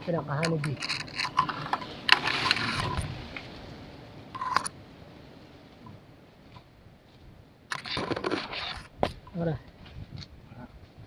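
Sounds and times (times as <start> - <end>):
camera rustling among leaves: 0.0 - 3.7
faint background hiss: 0.0 - 11.0.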